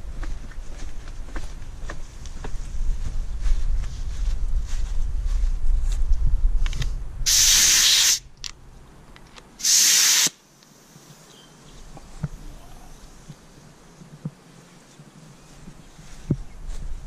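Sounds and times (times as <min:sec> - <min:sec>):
spray gun air hiss: 0:07.3 - 0:08.2, 0:09.6 - 0:11.2.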